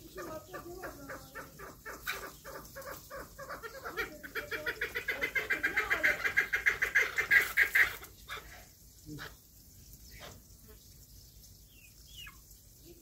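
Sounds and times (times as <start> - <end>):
poultry calling: 0.0 - 9.4.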